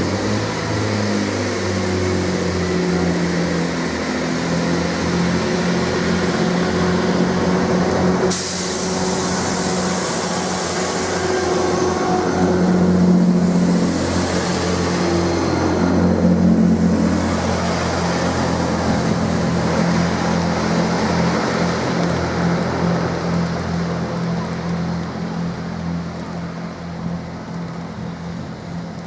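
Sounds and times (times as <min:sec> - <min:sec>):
diesel train passing: 0:00.0 - 0:29.0
sudden hiss: 0:08.2 - 0:12.2.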